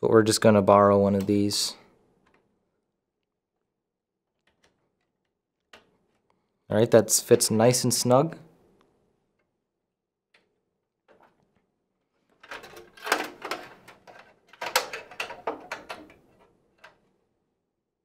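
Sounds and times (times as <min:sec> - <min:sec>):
cables clicking and rattling: 0:04.2 - 0:06.4, 0:10.3 - 0:17.1.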